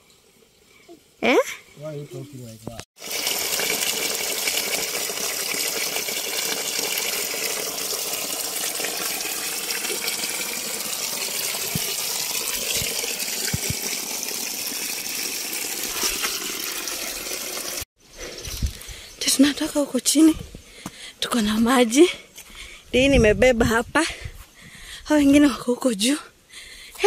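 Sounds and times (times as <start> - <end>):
spring water gushing: 3.0 - 18.6.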